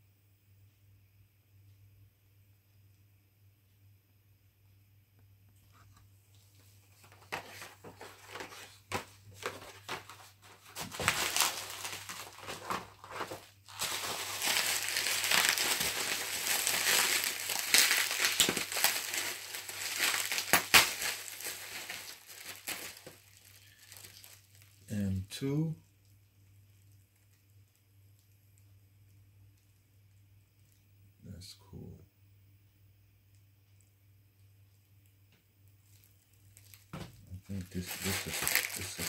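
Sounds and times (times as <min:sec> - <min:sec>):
bubble wrap crinkling and crackling: 0:05.7 - 0:24.9, 0:35.7 - 0:39.0.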